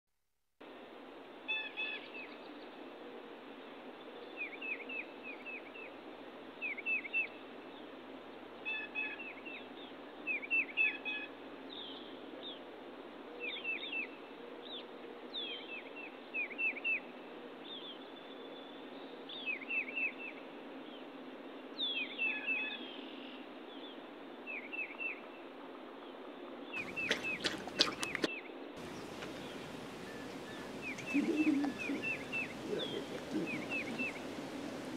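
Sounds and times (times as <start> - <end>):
songbirds chirping: 13.4 - 34.9
steady hiss: 28.8 - 34.9.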